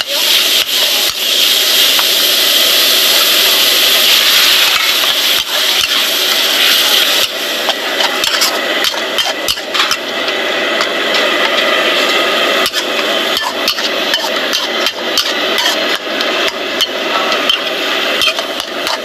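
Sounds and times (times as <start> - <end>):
food sizzling in a wok: 0.0 - 19.0
metal spatula scraping a pan: 4.4 - 10.1, 10.8 - 19.0.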